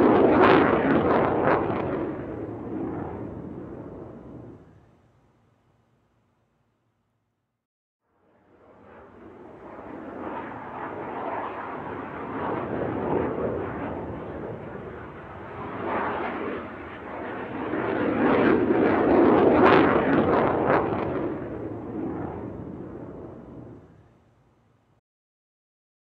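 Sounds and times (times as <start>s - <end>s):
jet aircraft roar: 0.0s - 5.4s, 8.2s - 24.4s.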